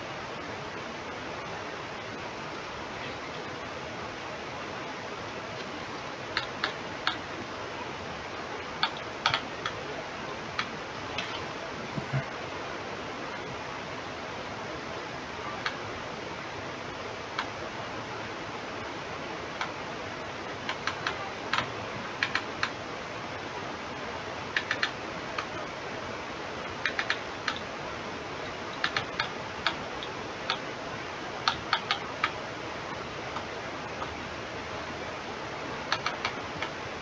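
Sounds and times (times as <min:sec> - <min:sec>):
steady hiss: 0:00.0 - 0:37.0
computer mouse clicks: 0:08.8 - 0:09.8, 0:20.7 - 0:22.8, 0:24.6 - 0:25.5, 0:26.8 - 0:27.6, 0:28.8 - 0:30.6, 0:31.4 - 0:32.4, 0:35.9 - 0:36.7.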